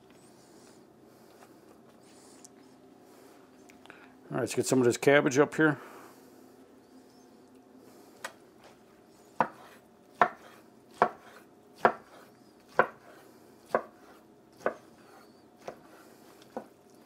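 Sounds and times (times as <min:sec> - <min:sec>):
knife chopping on cutting board: 0:09.4 - 0:16.8.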